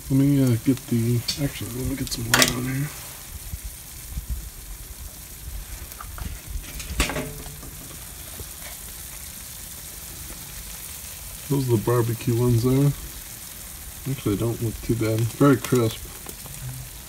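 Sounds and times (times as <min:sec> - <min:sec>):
chicken wings sizzling on grill: 0:00.0 - 0:17.0.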